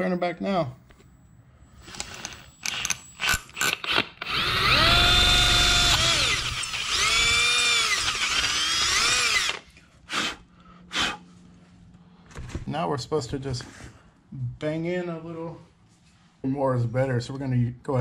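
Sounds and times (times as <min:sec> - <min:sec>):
electric drill whining: 0:01.8 - 0:10.4.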